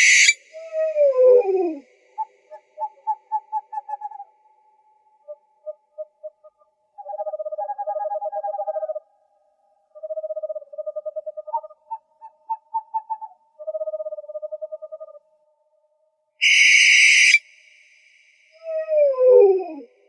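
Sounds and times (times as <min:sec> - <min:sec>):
owls hooting in trills: 0:00.0 - 0:04.6, 0:05.2 - 0:09.0, 0:09.9 - 0:15.2, 0:16.4 - 0:17.4, 0:18.6 - 0:20.0.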